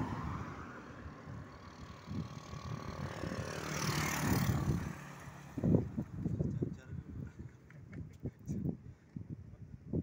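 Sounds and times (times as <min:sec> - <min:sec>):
vehicle passing: 0:00.0 - 0:06.4
wind noise on microphone: 0:00.0 - 0:10.0.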